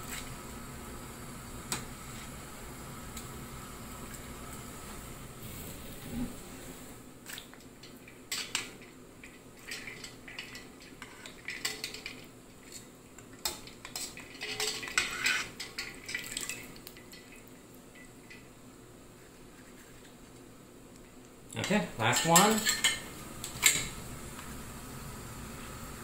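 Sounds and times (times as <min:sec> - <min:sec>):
metal tongs clinking on steel bowl: 0:13.4 - 0:17.4, 0:21.6 - 0:23.9.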